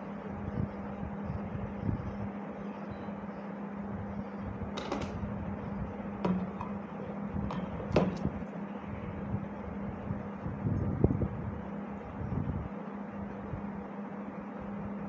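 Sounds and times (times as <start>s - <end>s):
steady low hum: 0.0s - 15.0s
objects clicking and knocking: 4.8s - 5.3s, 7.5s - 8.4s.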